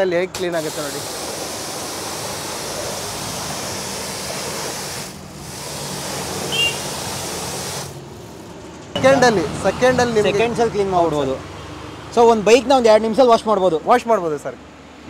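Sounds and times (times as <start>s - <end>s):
pressure washer spraying water: 0.2s - 8.5s.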